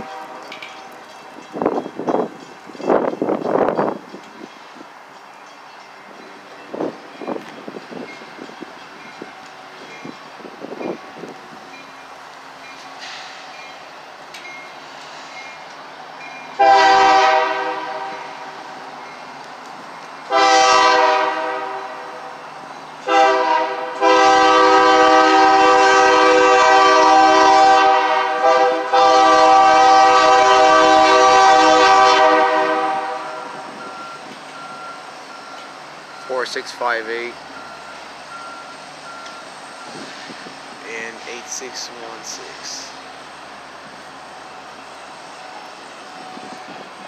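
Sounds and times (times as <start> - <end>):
locomotive air horn blasts: 0.0 - 0.5, 16.6 - 18.5, 20.3 - 22.2, 23.0 - 33.7.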